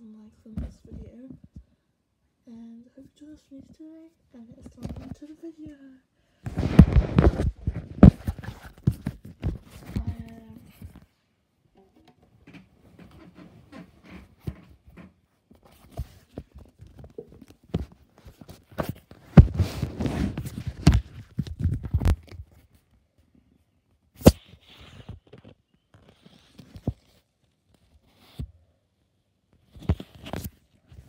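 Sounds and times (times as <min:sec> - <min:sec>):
fingers rubbing phone microphone: 0:06.5 - 0:11.0, 0:18.3 - 0:22.4.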